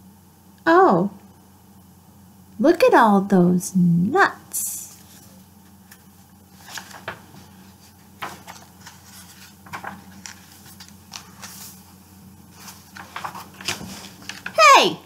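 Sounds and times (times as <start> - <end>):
faint low hum: 0.0 - 15.0
book pages rustling: 4.9 - 14.7.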